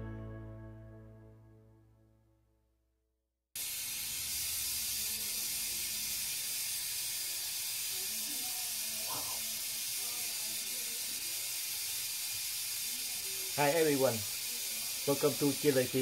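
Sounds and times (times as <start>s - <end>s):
steam hissing from radiator valve: 3.6s - 16.0s.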